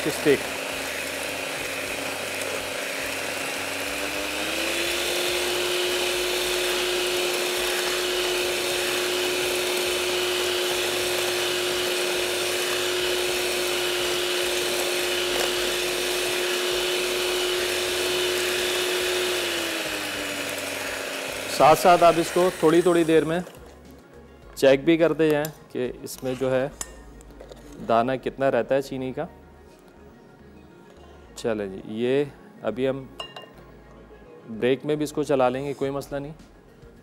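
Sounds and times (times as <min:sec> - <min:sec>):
electric beater motor humming: 0:00.0 - 0:23.3.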